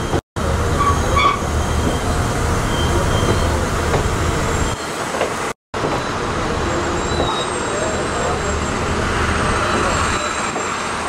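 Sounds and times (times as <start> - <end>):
train rumbling on rails: 0.0 - 11.0
short high squeals: 0.8 - 2.1.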